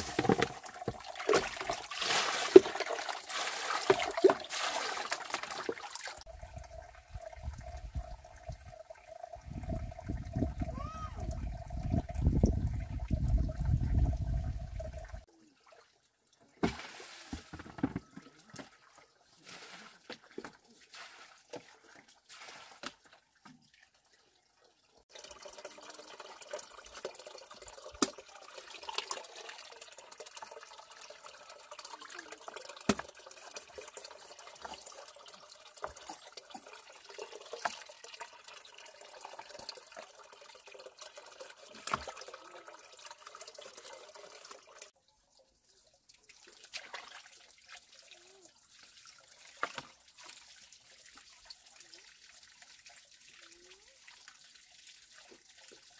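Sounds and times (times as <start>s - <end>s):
water running and splashing: 0.0s - 55.9s.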